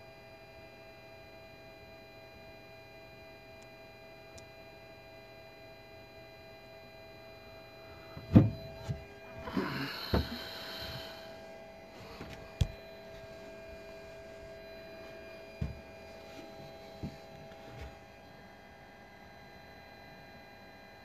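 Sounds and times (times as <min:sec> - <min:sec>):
steady hum: 0:00.0 - 0:21.0
dull knocks: 0:08.2 - 0:09.1, 0:10.0 - 0:10.5.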